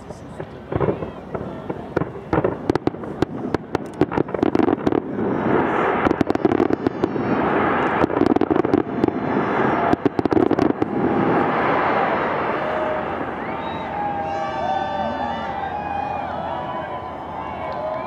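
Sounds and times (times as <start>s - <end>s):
fireworks bangs and crackles: 0.0s - 14.2s.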